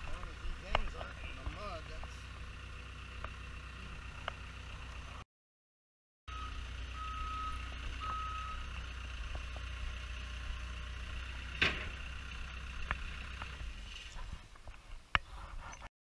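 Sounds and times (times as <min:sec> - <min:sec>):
diesel engine running: 0:00.0 - 0:05.2, 0:06.3 - 0:14.4
reverse alarm beeping: 0:06.3 - 0:08.7.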